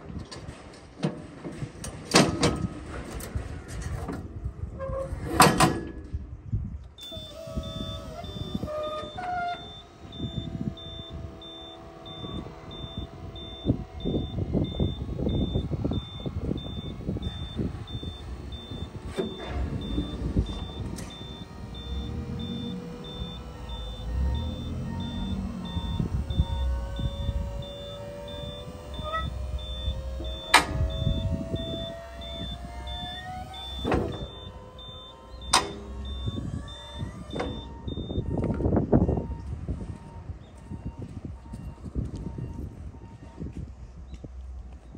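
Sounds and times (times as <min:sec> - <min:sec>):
low motor hum with whine: 0:01.5 - 0:44.9
high warning beeper: 0:07.0 - 0:38.4
mechanical clattering and knocking: 0:09.0 - 0:37.8.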